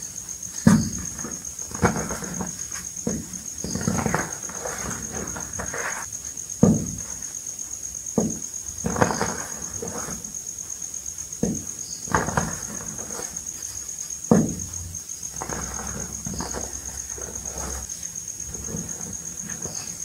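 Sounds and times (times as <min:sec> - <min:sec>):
powder sifting through fingers: 0:00.4 - 0:06.1, 0:15.2 - 0:20.0
chalk balls crunching: 0:15.3 - 0:20.0.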